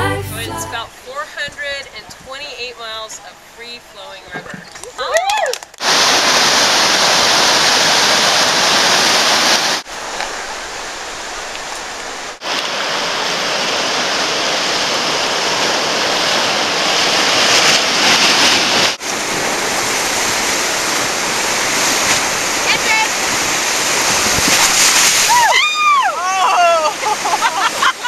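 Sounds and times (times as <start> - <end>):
whitewater rapids rushing: 5.8 - 28.0.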